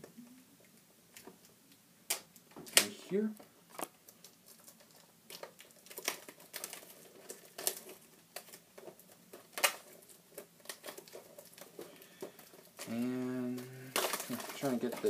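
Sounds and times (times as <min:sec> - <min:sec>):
plastic crinkling: 0:00.1 - 0:15.0
plastic snapping: 0:02.1 - 0:02.9, 0:04.6 - 0:10.0.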